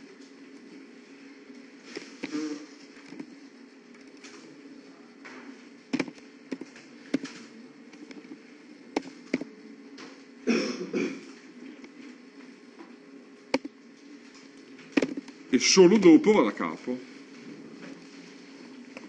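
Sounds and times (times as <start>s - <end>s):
steady low hum: 0.0s - 19.0s
keyboard and mouse clicks: 13.5s - 13.7s.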